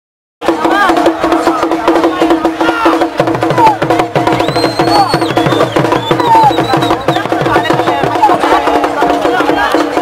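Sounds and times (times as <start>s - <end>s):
fast even drumbeat: 0.4s - 10.0s
high whistle-like tone: 4.2s - 8.0s.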